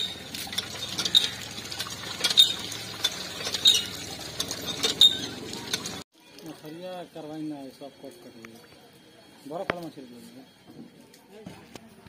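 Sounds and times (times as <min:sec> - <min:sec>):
water pouring into pot: 0:00.0 - 0:06.7.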